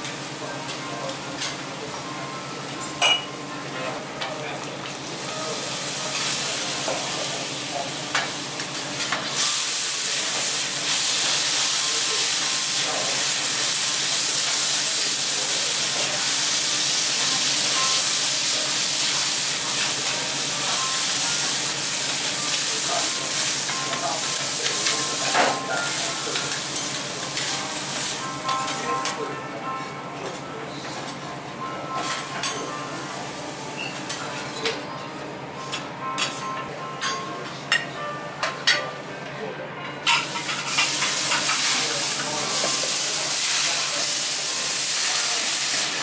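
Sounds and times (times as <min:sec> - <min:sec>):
food sizzling on griddle: 0:04.8 - 0:29.2, 0:32.0 - 0:34.2, 0:40.1 - 0:46.0.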